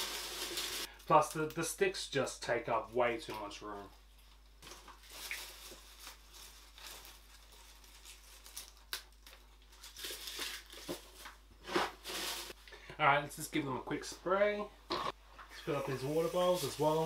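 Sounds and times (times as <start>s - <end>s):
dry leaves rustling and crackling: 4.6s - 8.9s.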